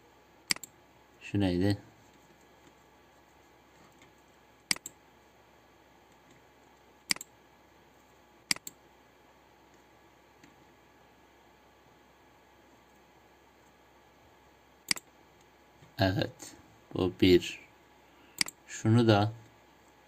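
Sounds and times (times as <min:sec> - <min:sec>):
computer mouse button clicks: 0:00.5 - 0:00.7, 0:07.1 - 0:07.3, 0:18.4 - 0:18.6.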